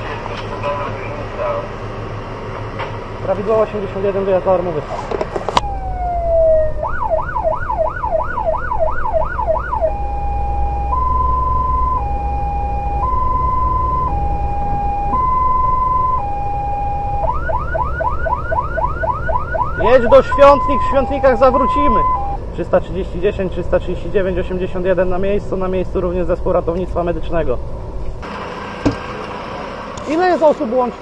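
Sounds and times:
engine running low: 0.0s - 31.0s
fire engine siren: 5.6s - 22.4s.

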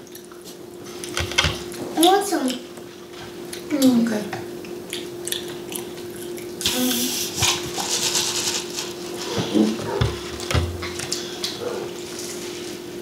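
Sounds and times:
chewing: 4.6s - 6.7s.

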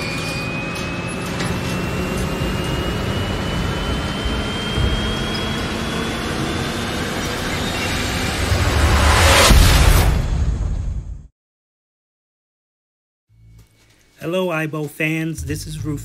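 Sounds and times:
rising whistling tone: 0.0s - 9.2s
low rumble: 1.7s - 11.3s.

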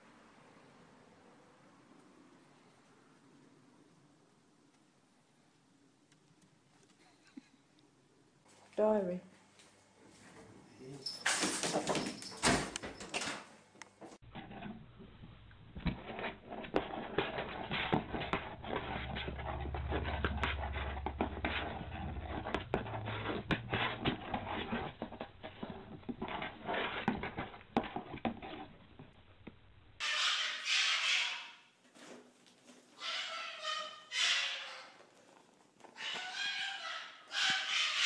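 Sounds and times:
cat scratching in cardboard box: 15.9s - 28.7s
low hum: 17.3s - 26.2s.

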